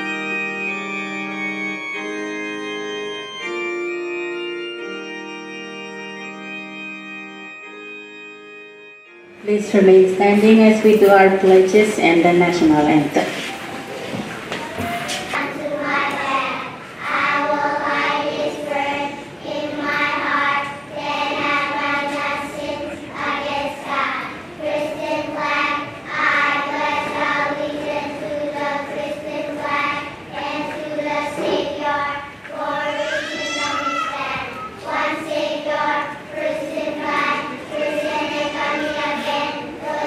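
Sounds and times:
children singing in unison: 0:13.8 - 0:40.0.

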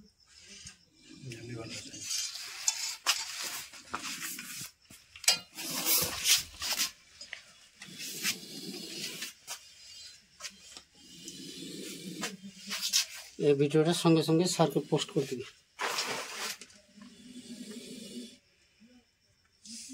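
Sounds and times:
objects scraping and clattering: 0:00.3 - 0:13.4, 0:14.5 - 0:16.8.

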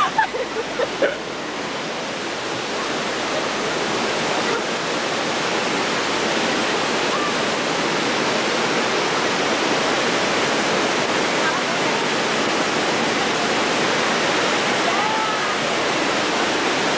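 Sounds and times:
running water rushing: 0:00.0 - 0:16.9.

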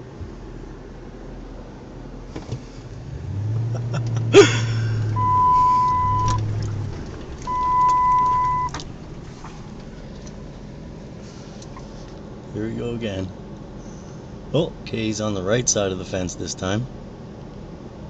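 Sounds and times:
truck engine driving: 0:00.0 - 0:17.1
long electronic beeps: 0:05.2 - 0:06.4, 0:07.5 - 0:08.8.

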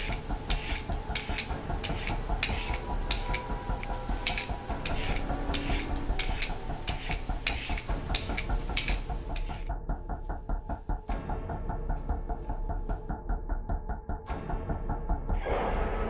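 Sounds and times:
peeler scraping carrot: 0:00.0 - 0:09.7.

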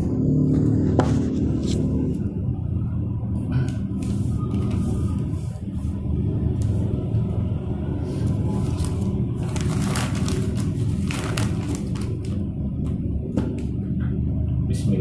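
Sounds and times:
low rumble: 0:00.0 - 0:15.0
paper wrapper rustling: 0:08.2 - 0:12.4.

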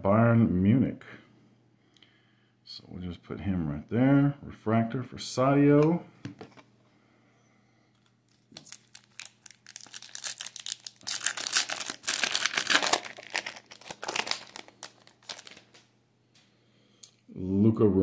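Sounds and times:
foil wrapper crinkling and tearing: 0:08.3 - 0:15.9.

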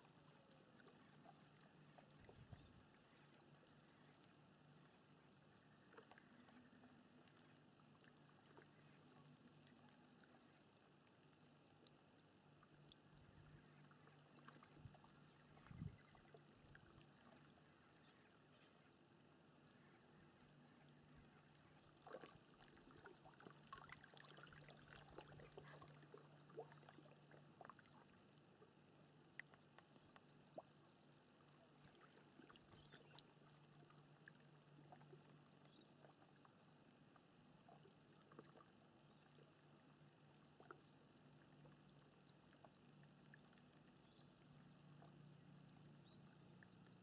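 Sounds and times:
water drips and splashes: 0:00.0 - 0:19.0, 0:19.6 - 0:28.6, 0:31.4 - 0:36.6
low steady hum: 0:00.0 - 0:47.0
water lapping and trickling: 0:00.0 - 0:47.0.

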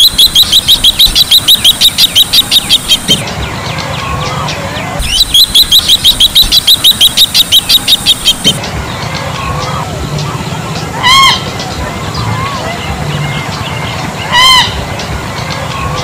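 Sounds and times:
fainter lower bird call: 0:00.0 - 0:10.0
bird rapid high piping: 0:00.0 - 0:16.0.

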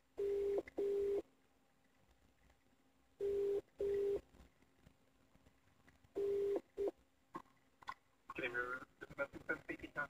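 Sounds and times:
telephone ringback tone: 0:00.2 - 0:01.2, 0:03.2 - 0:04.2, 0:06.2 - 0:07.0.

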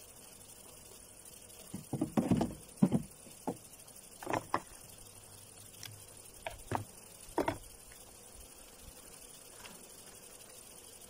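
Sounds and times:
wooden hive frames knocking: 0:01.6 - 0:04.8, 0:06.4 - 0:07.8
wood creaking: 0:01.7 - 0:03.6, 0:04.2 - 0:04.7.

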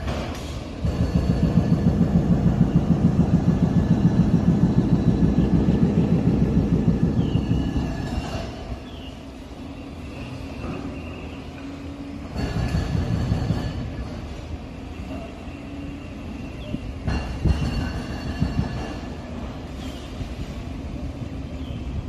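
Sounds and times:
hydraulic breaker hammering: 0:00.0 - 0:08.7.

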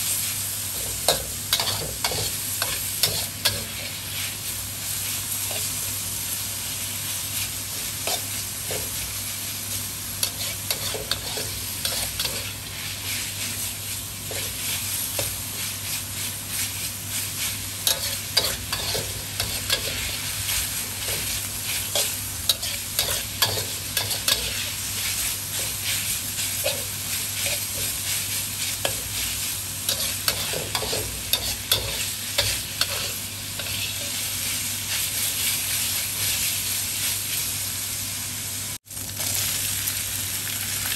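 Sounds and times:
pork sizzling in a wok: 0:00.0 - 0:40.9
metal spatula scraping a pan: 0:10.2 - 0:13.6, 0:17.8 - 0:29.3, 0:29.9 - 0:34.2.

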